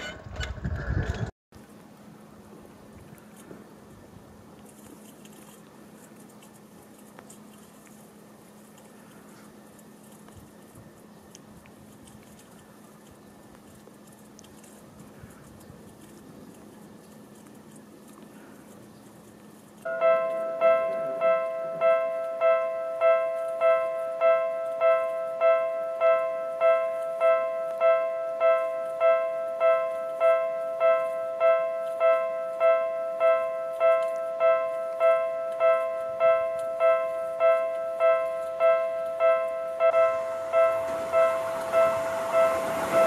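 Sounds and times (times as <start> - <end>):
level crossing warning bell: 19.8 - 43.0.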